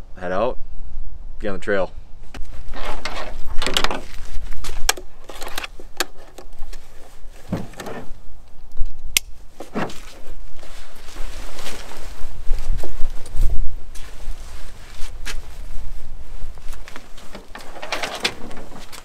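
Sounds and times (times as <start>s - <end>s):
gear rustling: 2.4s - 8.2s, 9.6s - 19.0s.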